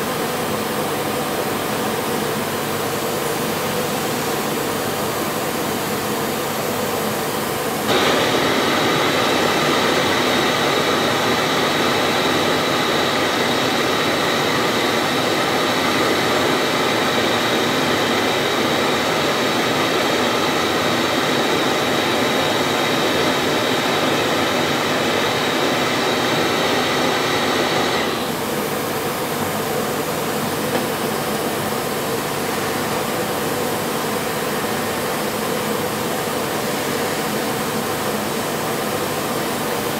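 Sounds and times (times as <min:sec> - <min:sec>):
gas torch flame hissing: 0:07.8 - 0:29.3.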